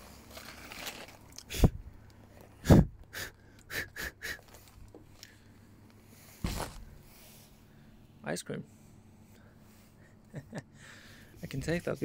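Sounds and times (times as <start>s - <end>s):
dull thumps: 6.4s - 7.1s
trash handled in a dumpster: 6.4s - 7.1s.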